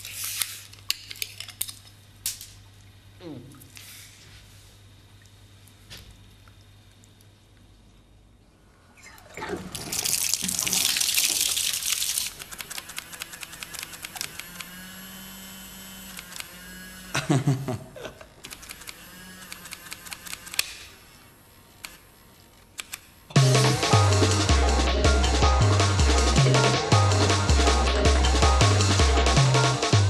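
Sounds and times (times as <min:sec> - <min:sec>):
bath water splashing: 0:09.2 - 0:12.4.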